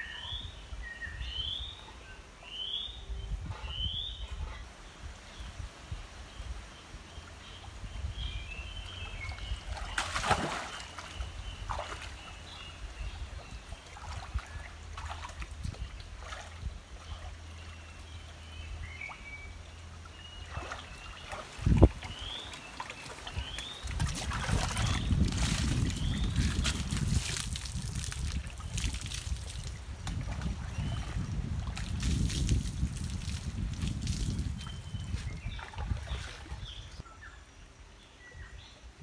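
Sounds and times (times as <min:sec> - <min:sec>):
birds chirping: 0:06.4 - 0:27.6
shallow water splashing: 0:09.4 - 0:12.6, 0:19.9 - 0:34.6.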